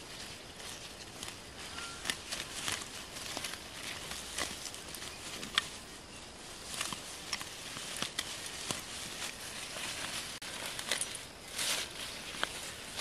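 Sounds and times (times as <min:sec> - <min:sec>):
foliage rustling: 0:00.0 - 0:13.0
sickle snapping plant stems: 0:06.7 - 0:09.4.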